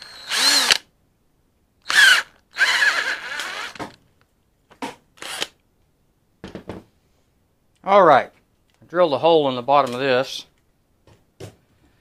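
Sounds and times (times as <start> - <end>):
cordless power drill boring: 0.0 - 0.8, 1.8 - 4.0, 5.2 - 5.6.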